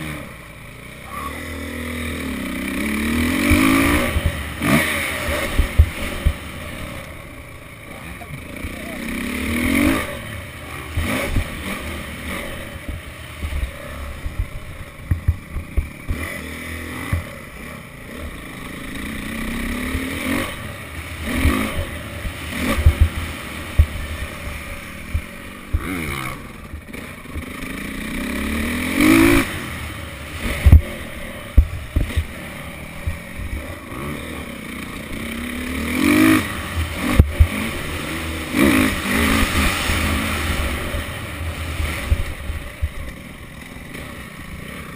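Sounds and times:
dirt bike engine revving: 0.0s - 44.9s
knocks and thuds over bumps: 5.4s - 6.5s, 12.8s - 16.3s, 21.3s - 26.0s, 30.4s - 32.4s, 33.0s - 33.8s, 37.0s - 37.8s, 41.8s - 43.2s.

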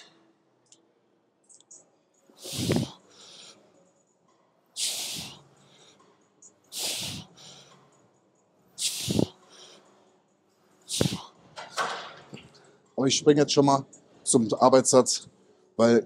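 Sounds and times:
forceful hissing breaths: 2.3s - 3.7s, 4.8s - 6.0s, 6.7s - 7.9s, 8.7s - 10.0s, 10.8s - 11.4s.

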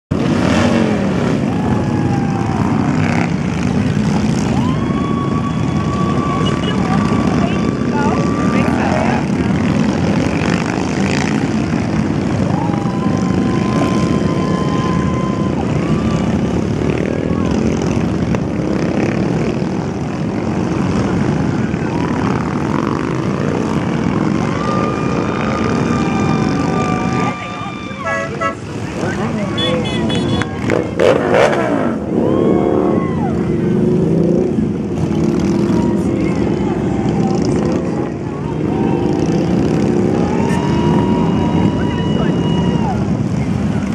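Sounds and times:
motorcycles riding past: 0.1s - 43.9s
horn long steady note: 27.9s - 28.8s.

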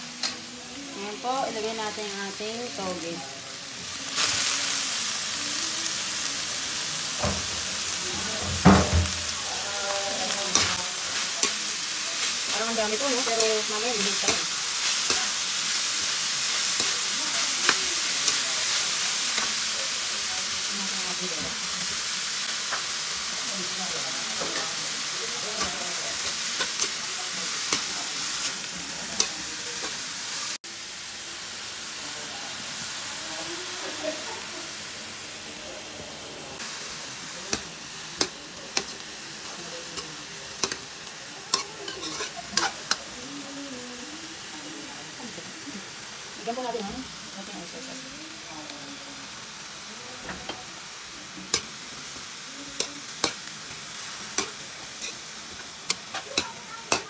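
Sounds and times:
bean sprouts sizzling in a wok: 0.0s - 57.0s
metal spatula scraping and clinking: 41.6s - 43.1s, 54.4s - 57.0s.

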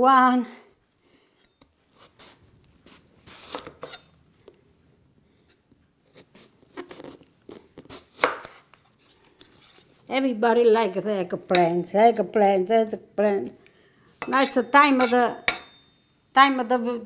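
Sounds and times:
knife slicing eggplant: 1.9s - 4.1s, 6.0s - 9.9s, 14.2s - 15.7s.

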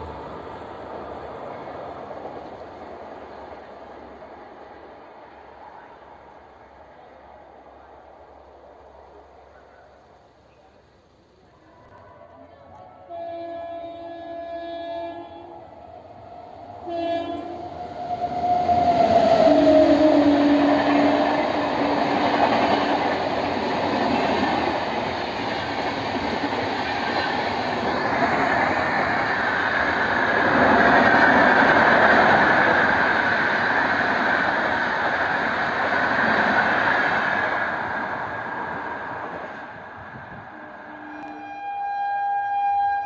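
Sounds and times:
train wheels rushing on rail: 0.0s - 41.8s
train horn: 11.5s - 15.8s, 16.7s - 22.0s, 40.3s - 43.0s.

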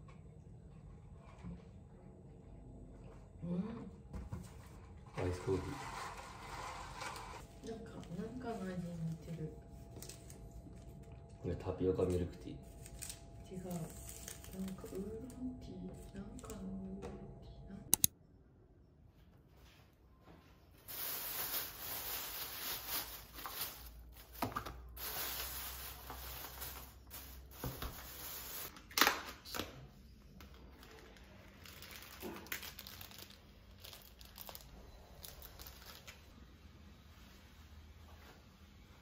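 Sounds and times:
plastic packaging crinkling: 20.9s - 29.1s, 30.5s - 36.3s.

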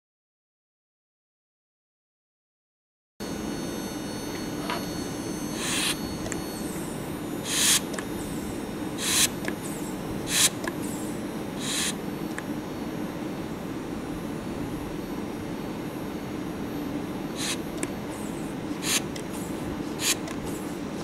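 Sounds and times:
electric buzzer in bell jar: 3.2s - 12.0s
vacuum pump hissing: 4.3s - 12.4s, 17.2s - 21.0s.

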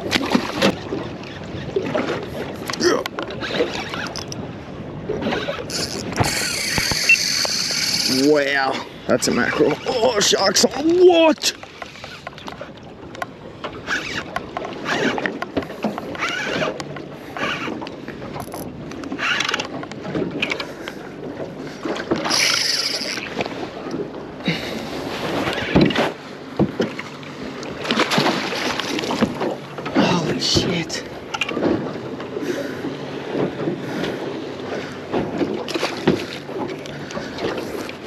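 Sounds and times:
water splashing around kayak: 0.0s - 38.0s.

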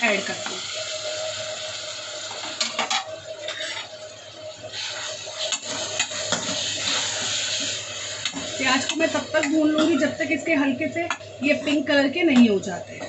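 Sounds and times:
onions sizzling in hot oil: 0.0s - 13.0s
metal ladle scraping a pan: 3.4s - 3.9s.

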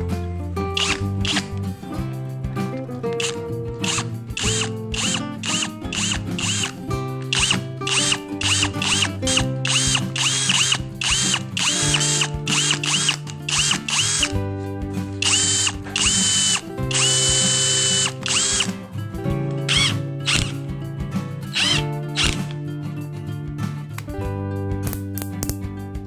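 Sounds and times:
background music: 0.0s - 26.0s
cordless drill boring into wood: 0.8s - 1.5s, 3.2s - 14.4s, 15.2s - 18.8s, 19.7s - 20.6s, 21.6s - 22.4s.

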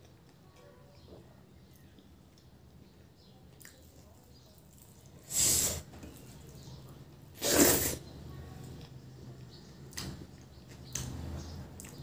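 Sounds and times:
sharp sniffs through the nose: 5.3s - 5.9s, 7.4s - 8.0s.

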